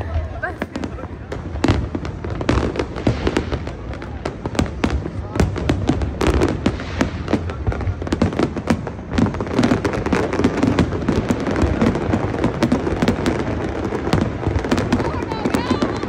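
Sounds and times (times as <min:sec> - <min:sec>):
fireworks bursting and crackling: 0:00.0 - 0:16.0.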